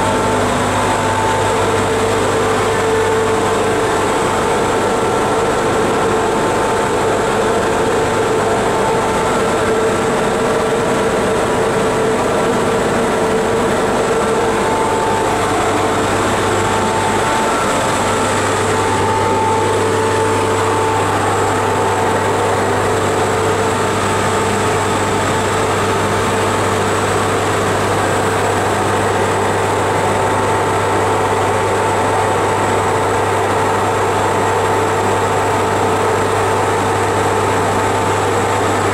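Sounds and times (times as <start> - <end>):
cooling fan motors running: 0.0 - 38.9
locomotive machine room hum: 0.0 - 38.9.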